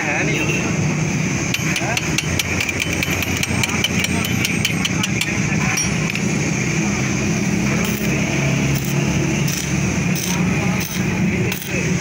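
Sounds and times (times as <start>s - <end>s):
arc welding crackles: 7.8s - 12.0s.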